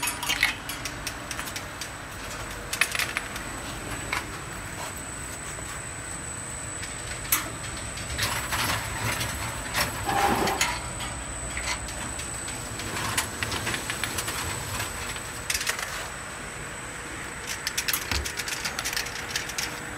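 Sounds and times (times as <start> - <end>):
clicks and glassy clinks: 0.0 - 1.6
bottle washing machine humming: 0.0 - 19.9
high machine whine: 0.0 - 19.9.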